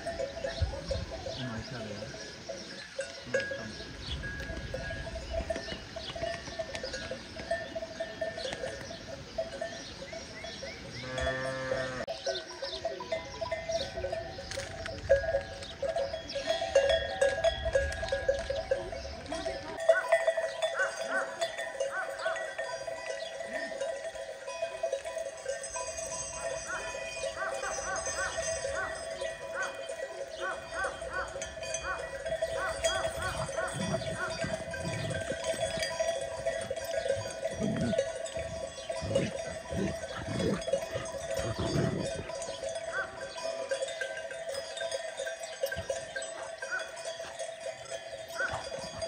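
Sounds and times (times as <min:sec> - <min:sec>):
sheep bells clanking: 0:00.0 - 0:49.0
sheep bleating: 0:39.0 - 0:43.2.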